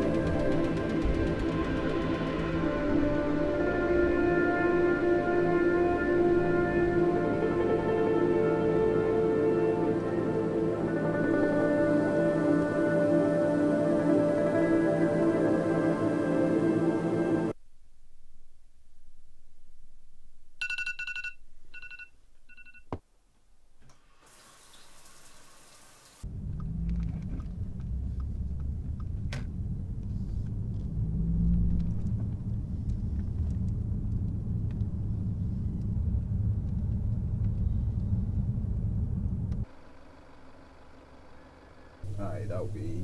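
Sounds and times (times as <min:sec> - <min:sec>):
hiss: 0:24.0 - 0:26.2
car driving rumble inside cabin: 0:26.3 - 0:39.7.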